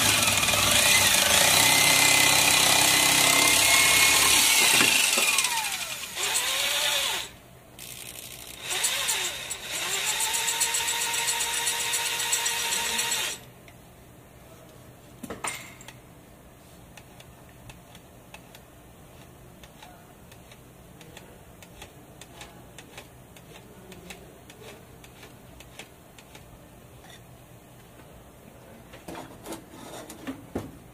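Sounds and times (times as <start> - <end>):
electric drill running: 0.0 - 13.4.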